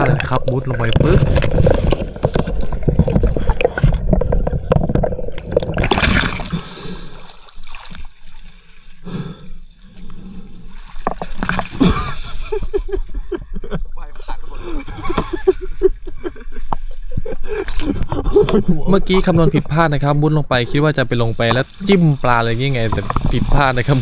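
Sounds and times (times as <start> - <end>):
water gurgling and sloshing: 0.0 - 13.7, 14.7 - 24.0
splashing in pond water: 0.8 - 9.0.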